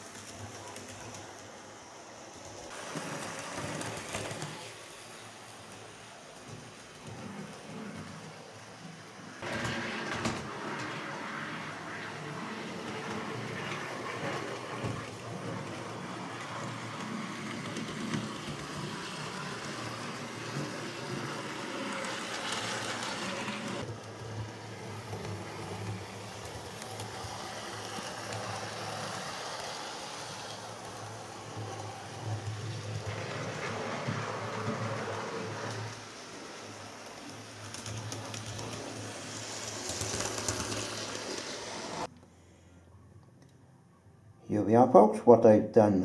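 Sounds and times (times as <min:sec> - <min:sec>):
model train motor hum: 0:08.2 - 0:42.1
wheels rattling on rails: 0:09.4 - 0:42.1.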